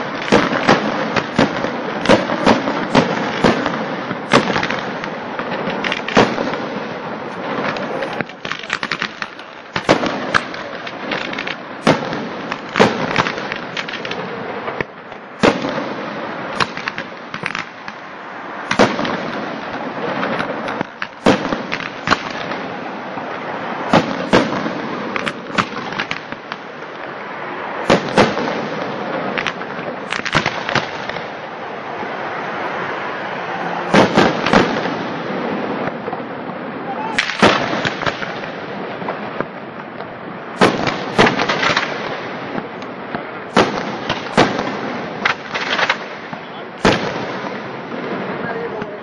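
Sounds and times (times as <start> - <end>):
firework bangs: 0.0 - 49.0
fireworks hiss and crackle: 0.0 - 49.0.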